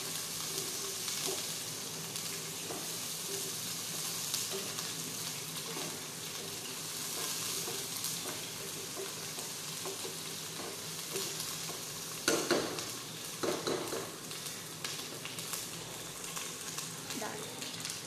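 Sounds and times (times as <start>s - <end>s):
onions sizzling in oil: 0.0s - 18.0s
spoon stirring in pan: 0.5s - 14.2s.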